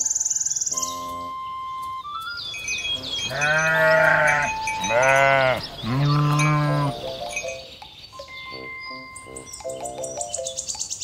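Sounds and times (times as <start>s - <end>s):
birds chirping: 0.0s - 11.0s
cow mooing: 3.3s - 7.0s.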